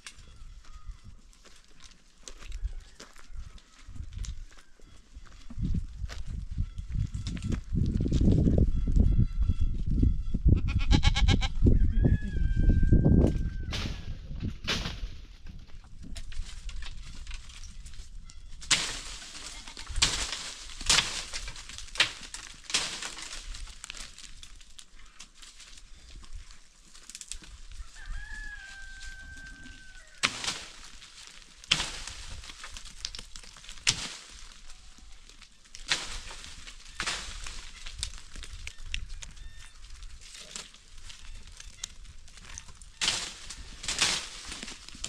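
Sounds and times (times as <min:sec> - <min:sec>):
footsteps on stony ground: 0:00.0 - 0:09.9, 0:14.3 - 0:45.0
rooster crowing: 0:02.3 - 0:04.6, 0:11.0 - 0:14.1, 0:27.7 - 0:30.3.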